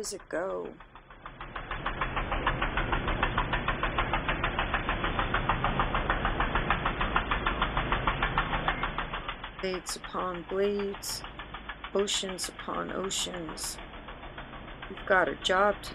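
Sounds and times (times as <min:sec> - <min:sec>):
mower engine chugging: 0:00.0 - 0:15.9.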